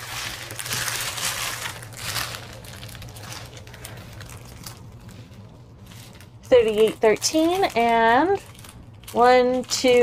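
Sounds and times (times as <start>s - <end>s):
plastic bags crinkling: 0.0s - 10.0s
steady low hum: 0.0s - 10.0s.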